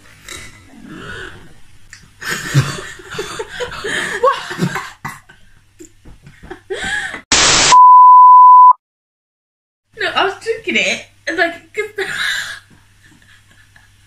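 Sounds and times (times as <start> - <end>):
tv static: 7.3 - 8.7
high-pitched test-tone beep: 7.6 - 8.8.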